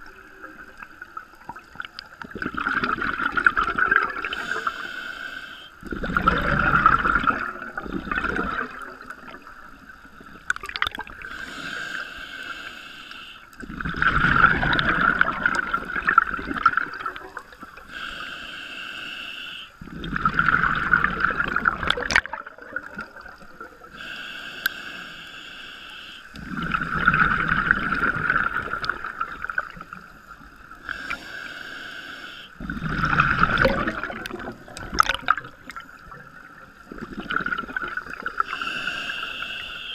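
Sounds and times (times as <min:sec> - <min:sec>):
bubbling exhalations: 0:02.2 - 0:04.7, 0:05.9 - 0:09.4, 0:10.5 - 0:11.3, 0:13.6 - 0:17.9, 0:19.8 - 0:24.0, 0:26.4 - 0:29.9, 0:32.6 - 0:36.3
hissing regulator inhalations: 0:04.3 - 0:05.8, 0:11.2 - 0:13.6, 0:17.5 - 0:19.9, 0:23.9 - 0:26.8, 0:29.5 - 0:33.7, 0:38.1 - 0:39.9.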